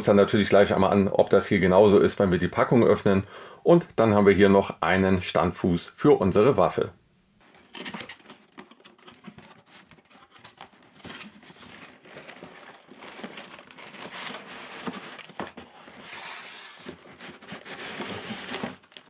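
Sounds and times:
cardboard rustling and scraping: 7.4 - 19.0.

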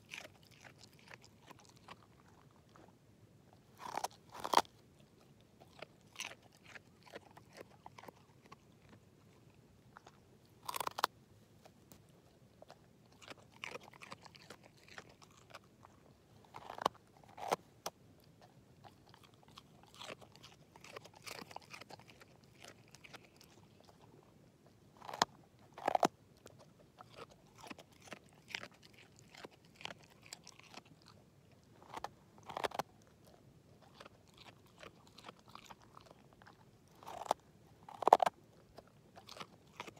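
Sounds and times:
dog crunching a carrot: 0.0 - 39.9.

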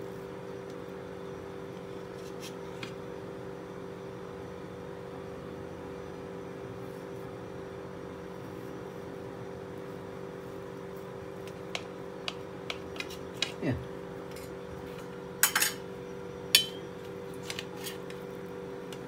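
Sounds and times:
machine hum with tones: 0.0 - 19.0.

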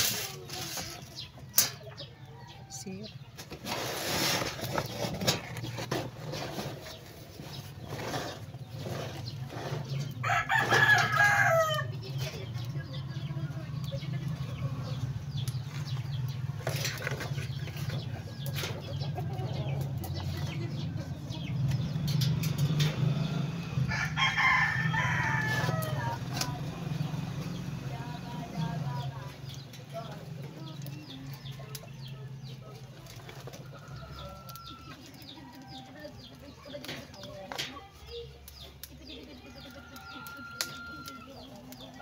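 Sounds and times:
rooster crowing: 10.2 - 12.0, 23.8 - 26.3, 39.8 - 41.4.

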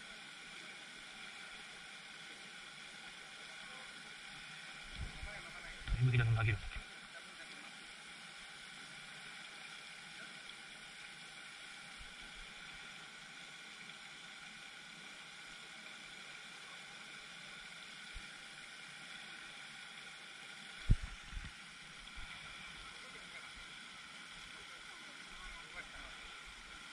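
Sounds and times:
fountain spray splashing on water: 22.2 - 26.4.

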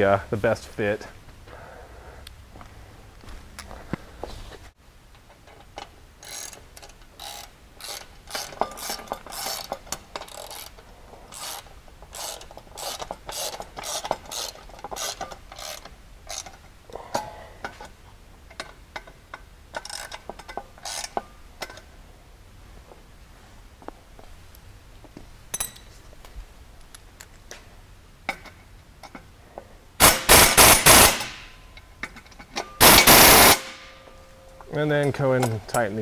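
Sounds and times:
ratchet wrench clicking: 6.2 - 16.6, 18.6 - 21.8.

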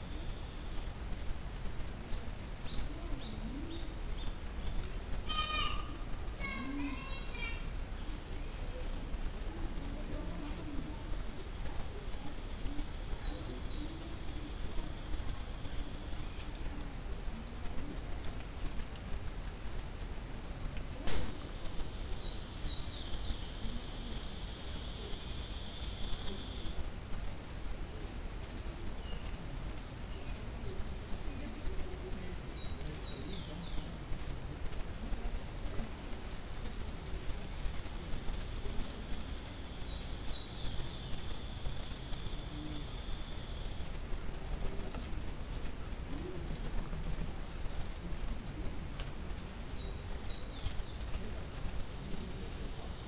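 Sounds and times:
faint ticks: 0.0 - 53.0
outdoor hiss: 0.0 - 53.0
sharp click: 21.0 - 21.6.

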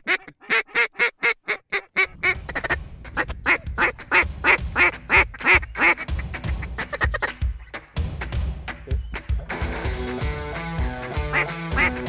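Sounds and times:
duck call quacking notes: 0.0 - 7.8, 11.1 - 12.0.

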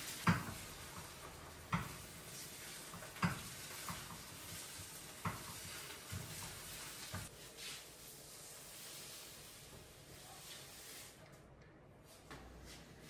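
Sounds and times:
food sizzling in a pan: 0.0 - 7.3
utensil knocking against pan: 1.7 - 2.0, 3.0 - 4.2.

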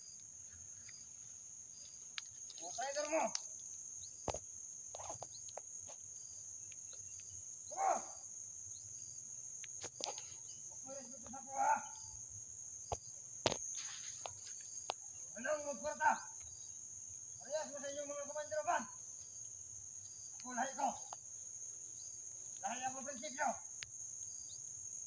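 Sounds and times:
insect chorus drone: 0.0 - 25.0
sharp snaps and clicks: 2.1 - 4.4.

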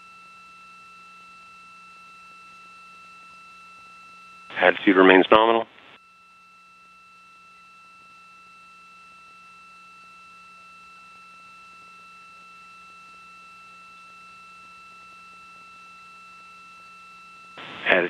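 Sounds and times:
low hum: 4.5 - 5.9
high electronic whine: 17.6 - 18.0.

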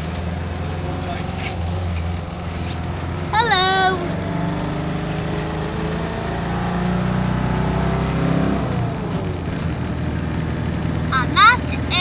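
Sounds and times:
van engine heard from inside: 0.0 - 12.0.

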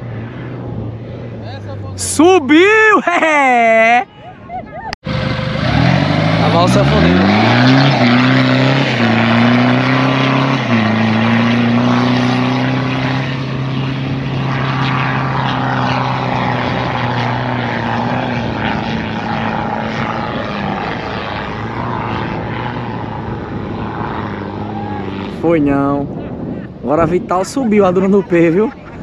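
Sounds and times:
truck engine revving: 5.0 - 25.4.

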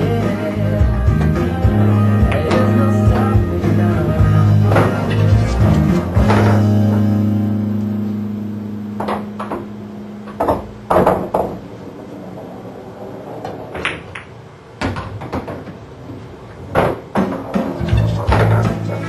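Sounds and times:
pool balls clacking: 0.0 - 8.1, 8.9 - 19.0
held music chord: 0.0 - 10.3.

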